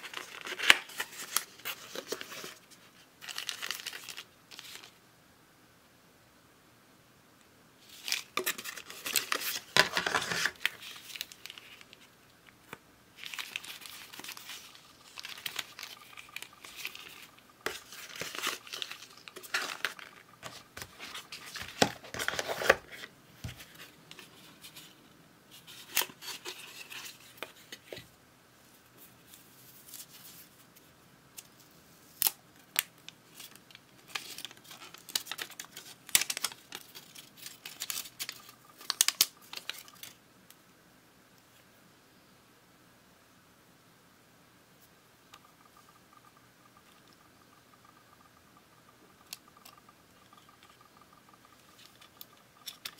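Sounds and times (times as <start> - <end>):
paper packaging rustling: 0.0 - 5.0, 7.8 - 12.1, 13.2 - 28.0, 32.8 - 40.2.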